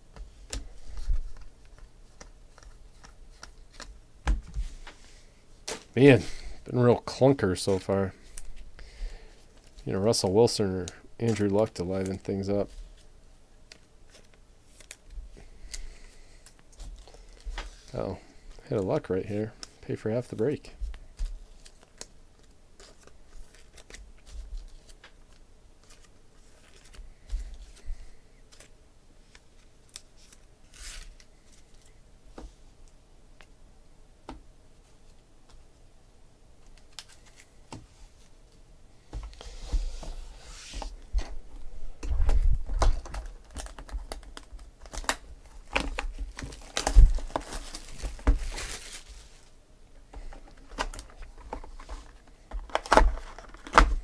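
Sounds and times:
plastic shrink-wrap crinkling: 42.7s - 49.5s.

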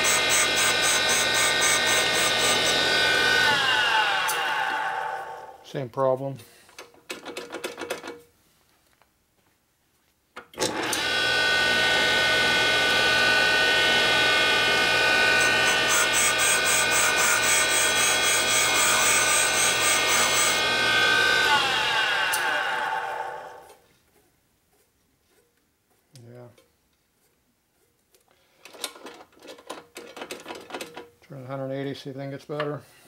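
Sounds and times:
stone grinding valve face: 0.0s - 3.6s, 15.1s - 22.4s
machine motor whining: 0.0s - 5.5s, 10.6s - 23.8s.

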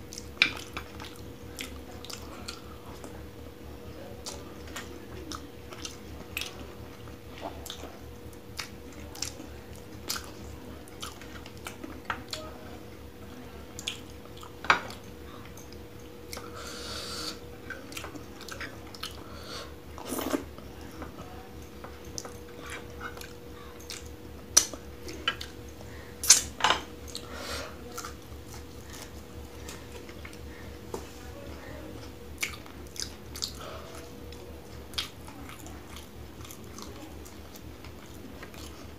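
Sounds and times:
faint steady hum: 0.0s - 38.9s
wet chewing: 4.2s - 12.5s, 17.2s - 19.3s, 21.8s - 25.6s, 32.0s - 38.9s.

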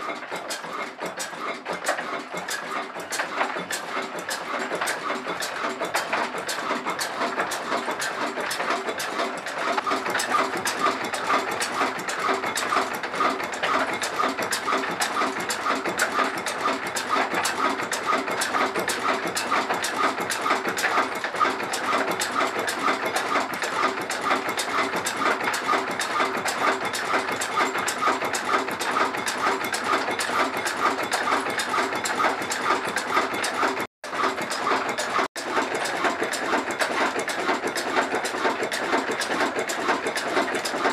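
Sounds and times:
diesel engine running: 6.3s - 35.2s.

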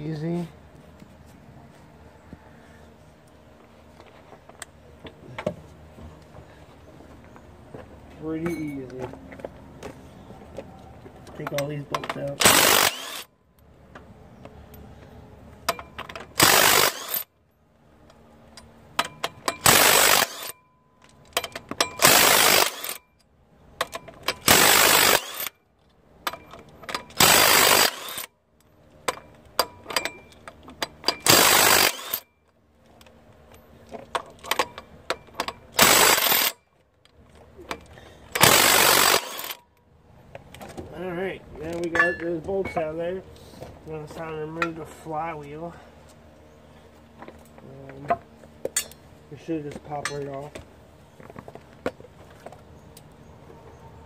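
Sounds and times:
impact wrench bursts: 11.5s - 13.3s, 15.7s - 17.3s, 19.0s - 20.6s, 21.3s - 23.1s, 23.8s - 25.6s, 26.3s - 28.3s, 29.6s - 32.3s, 34.6s - 36.7s, 37.7s - 39.6s.

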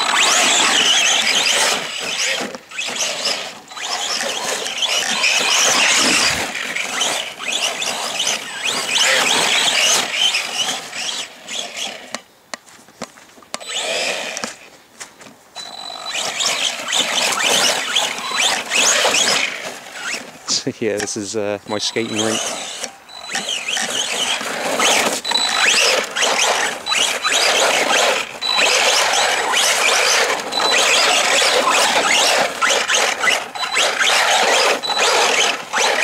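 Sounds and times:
electric motor whining: 0.0s - 12.2s, 13.6s - 14.6s, 15.6s - 36.0s
tyres through wet grass: 16.9s - 28.2s.

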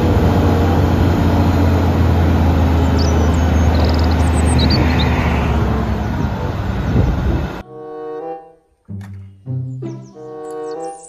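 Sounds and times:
truck diesel engine running: 0.0s - 7.6s
birds chirping: 1.5s - 7.6s, 9.2s - 11.0s.

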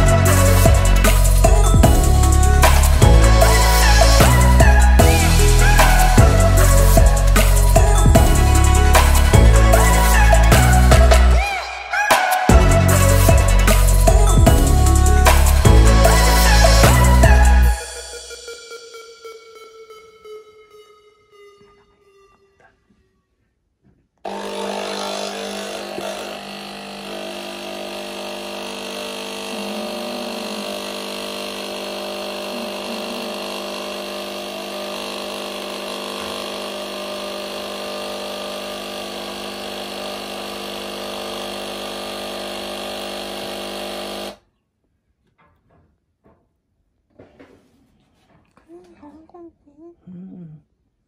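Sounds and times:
coffee machine pump humming: 24.4s - 44.4s.

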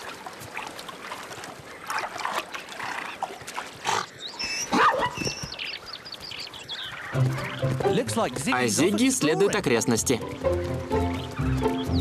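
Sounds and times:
high squeaky calls: 6.7s - 8.2s.

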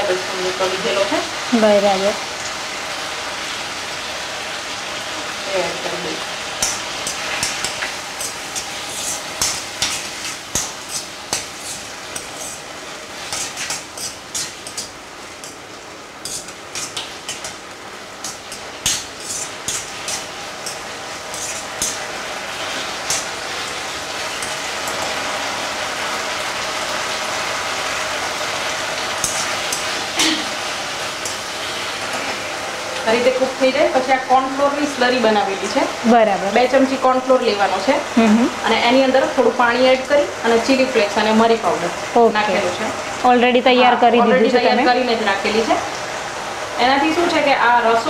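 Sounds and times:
frying sizzle: 0.0s - 48.0s
spoon scraping in a wok: 6.5s - 15.6s, 16.2s - 17.6s, 18.2s - 23.7s, 29.1s - 30.2s, 31.1s - 31.8s.

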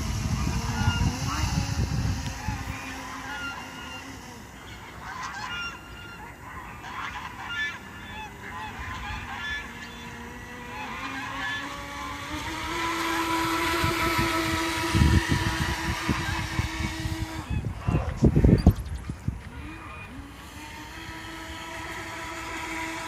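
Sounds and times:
toy boat motor whining: 0.0s - 23.0s
geese honking: 2.4s - 12.2s.

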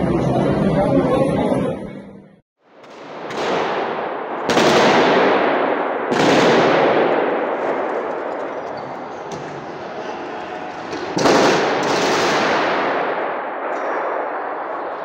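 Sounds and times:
automatic gunfire echoing: 2.8s - 8.6s, 11.0s - 15.0s.

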